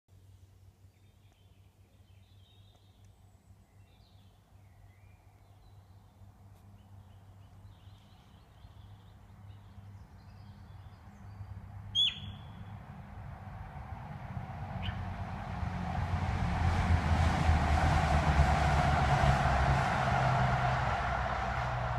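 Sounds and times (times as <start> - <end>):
faint birdsong: 0.1 - 12.8, 14.8 - 15.1
low rumble: 13.0 - 21.9.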